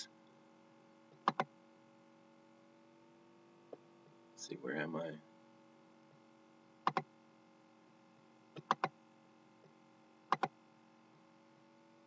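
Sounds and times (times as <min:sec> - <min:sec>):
computer mouse clicking: 0:01.2 - 0:01.5, 0:06.8 - 0:07.1, 0:08.5 - 0:09.0, 0:09.6 - 0:10.6.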